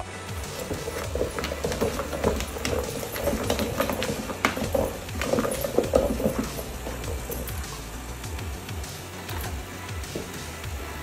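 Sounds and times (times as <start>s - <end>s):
dog claws clicking on hard surface: 0.5s - 7.8s.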